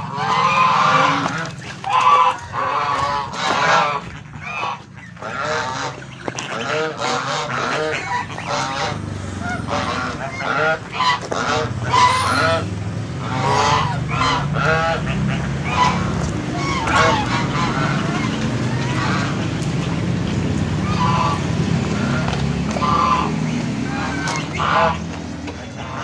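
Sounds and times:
geese honking: 0:00.0 - 0:26.0.

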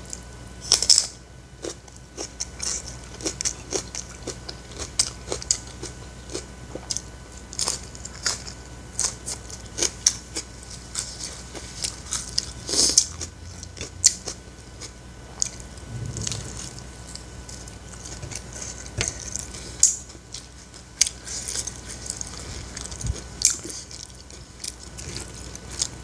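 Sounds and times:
person chewing with wet smacks: 0:20.3 - 0:25.9.

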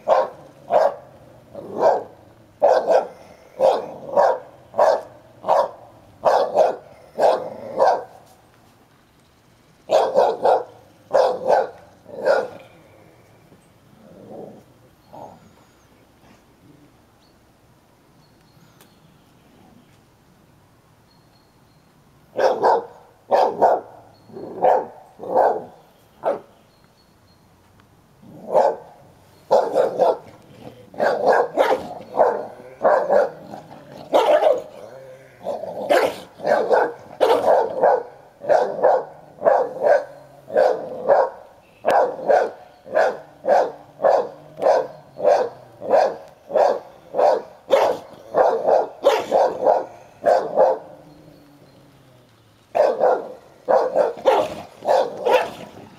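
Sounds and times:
dog barking: 0:00.0 - 0:08.2, 0:09.9 - 0:12.6, 0:22.4 - 0:24.0, 0:24.6 - 0:26.5, 0:28.4 - 0:28.9, 0:29.5 - 0:30.3, 0:30.9 - 0:34.7, 0:35.4 - 0:50.9, 0:52.7 - 0:55.7.

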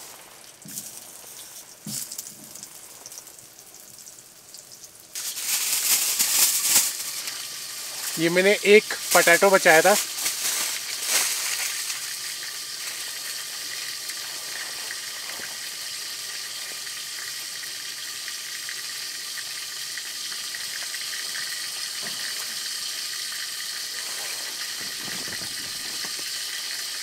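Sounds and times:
water boiling and sizzling: 0:00.0 - 0:27.0.

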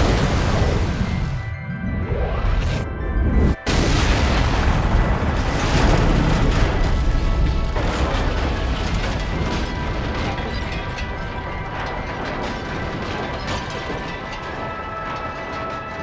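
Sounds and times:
scattered crackles: 0:03.5 - 0:16.0.

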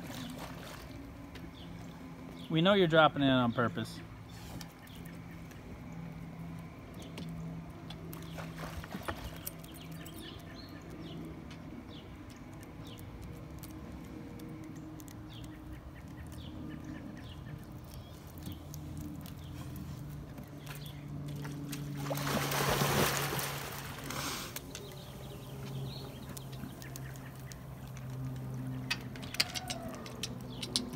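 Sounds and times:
steady low hum: 0:00.0 - 0:30.9
dog splashing into pool: 0:21.5 - 0:24.4.

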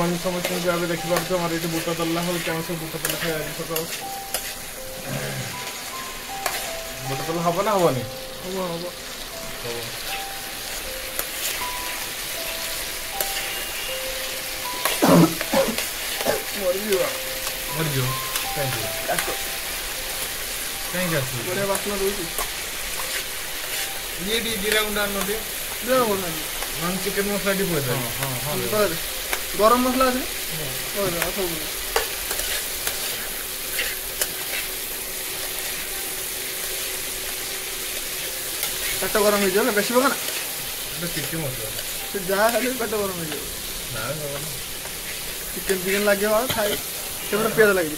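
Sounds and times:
food sizzling in oil: 0:00.0 - 0:47.9
metal spoon scraping a pan: 0:00.4 - 0:05.8, 0:06.4 - 0:06.7, 0:31.9 - 0:35.8, 0:37.9 - 0:42.6
spoon stirring in pan: 0:03.0 - 0:04.6, 0:32.0 - 0:35.0.

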